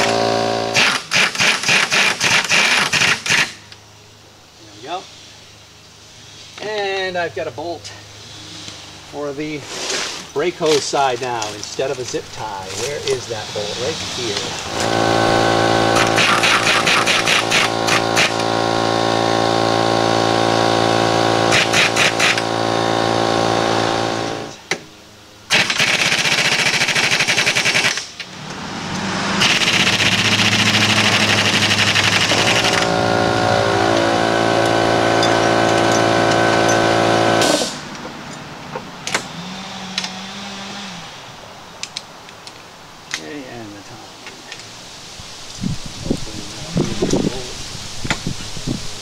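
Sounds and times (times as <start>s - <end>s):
impact wrench whining and hammering: 0.0s - 3.7s, 14.4s - 24.9s, 25.5s - 40.9s.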